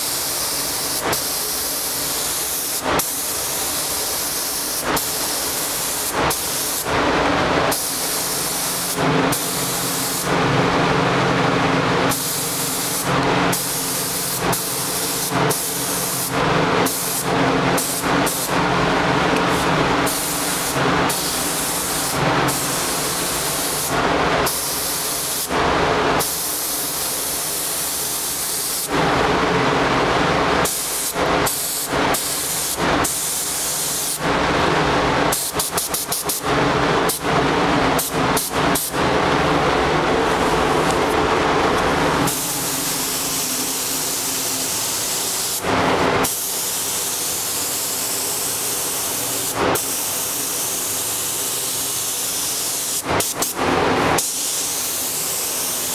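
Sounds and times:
paint spray gun hissing: 0:00.0 - 0:06.9, 0:07.7 - 0:10.4, 0:12.0 - 0:25.6, 0:26.2 - 0:28.9, 0:30.6 - 0:34.2, 0:35.3 - 0:36.5, 0:38.0 - 0:38.9, 0:42.2 - 0:53.6, 0:54.2 - 0:55.9.

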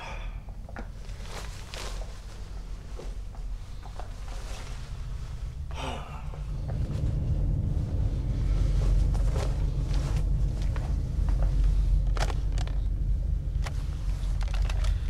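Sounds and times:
low steady rumble: 0:00.0 - 0:15.0.

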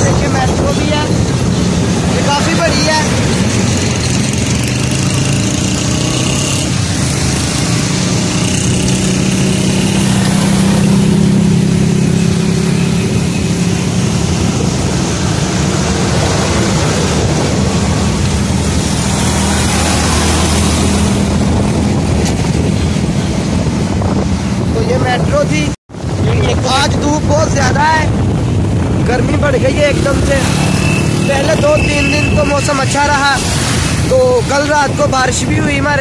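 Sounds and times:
road traffic noise: 0:00.0 - 0:36.0.

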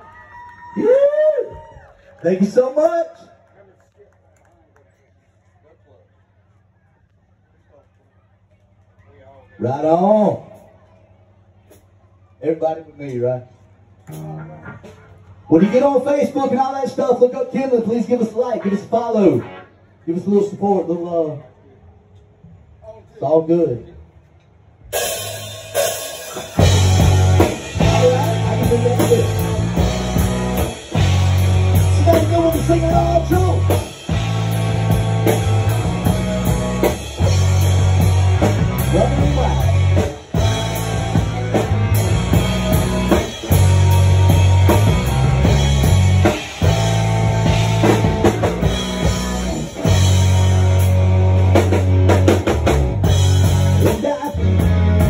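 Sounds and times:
guitar: 0:14.0 - 0:19.8, 0:25.0 - 0:55.0
drum kit: 0:14.1 - 0:15.8, 0:24.9 - 0:55.0
heavy repeating bass line: 0:26.6 - 0:55.0.

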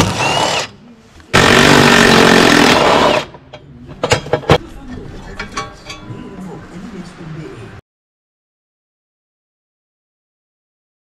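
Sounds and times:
cordless power tool spinning: 0:00.0 - 0:00.7.

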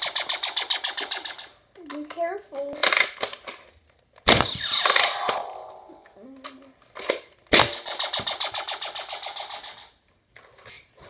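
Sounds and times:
toy blaster blast: 0:00.0 - 0:01.5, 0:04.3 - 0:06.1, 0:07.5 - 0:10.0.

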